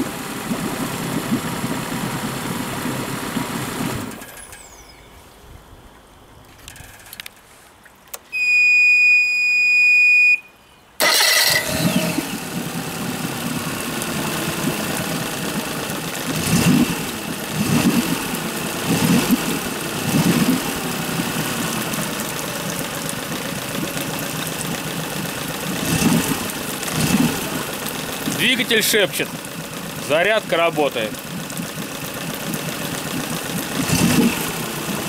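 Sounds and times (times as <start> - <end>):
outboard motor idling: 0.0 - 4.9, 11.0 - 35.0
high electronic beep: 4.4 - 5.2.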